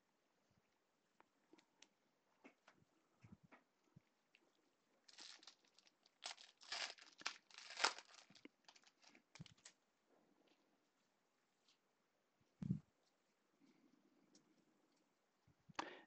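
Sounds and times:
foil pack tearing and crinkling: 5.1 - 9.7.

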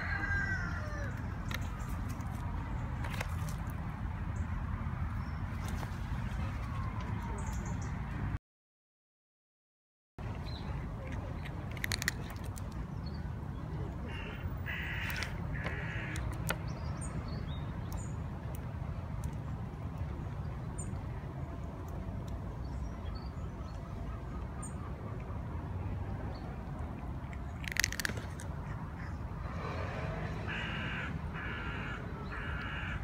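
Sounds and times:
bird cawing: 14.1 - 16.2, 30.5 - 33.0.

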